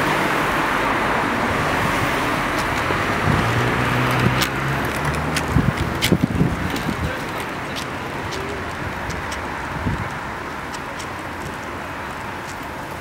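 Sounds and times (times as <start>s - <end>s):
road traffic noise: 0.0s - 13.0s.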